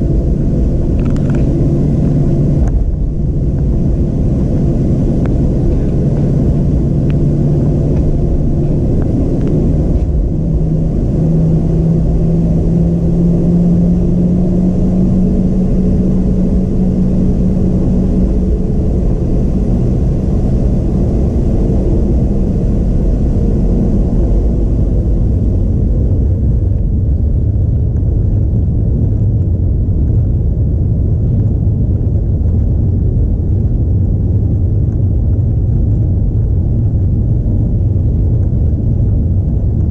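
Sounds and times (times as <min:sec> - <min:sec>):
humming tone: 0:00.0 - 0:28.2
jet engines low rumble: 0:00.0 - 0:39.9.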